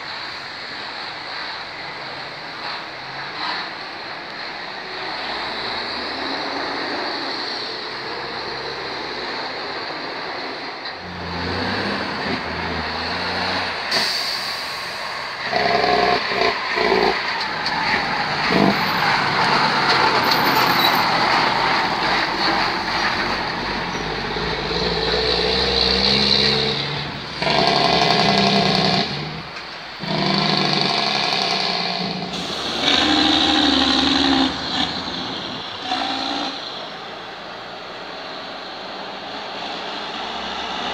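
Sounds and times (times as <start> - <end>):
diesel trucks passing: 0.0 - 40.9
tyre and road noise: 0.0 - 40.9.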